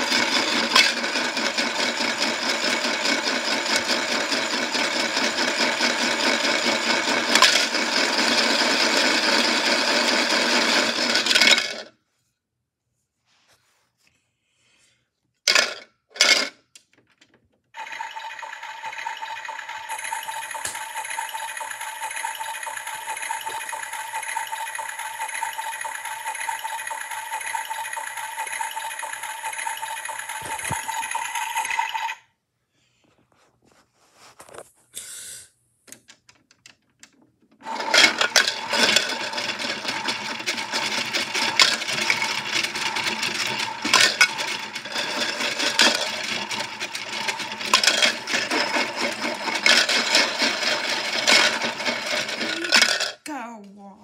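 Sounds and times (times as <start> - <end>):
cookies rattling in drum: 0.0 - 11.9, 37.6 - 53.2
toy washing machine motor whir: 0.0 - 11.9, 15.5 - 16.9, 17.7 - 32.3, 37.0 - 53.4.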